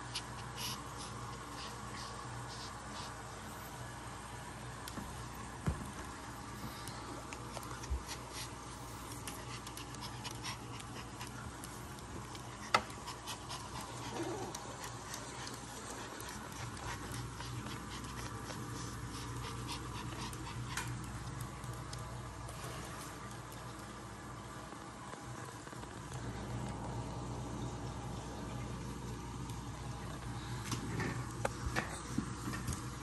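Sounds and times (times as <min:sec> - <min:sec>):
puppy panting: 0:00.0 - 0:03.5, 0:06.8 - 0:22.4
low steady hum: 0:00.0 - 0:33.0.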